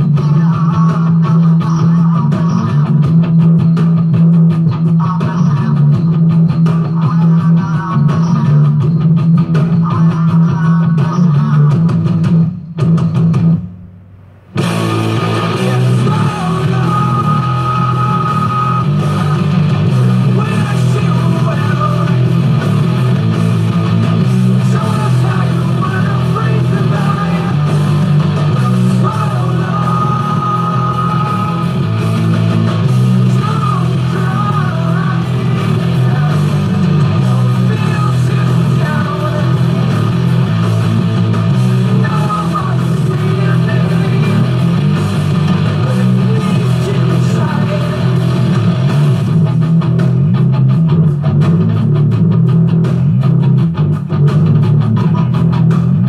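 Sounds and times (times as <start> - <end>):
loud rock music with guitar: 0.0 - 13.8, 14.5 - 56.0.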